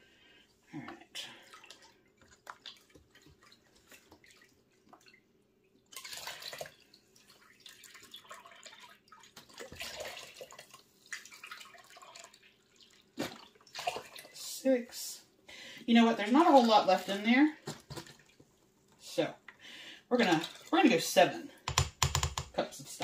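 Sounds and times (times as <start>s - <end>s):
liquid trickling into a cup: 5.9s - 14.4s.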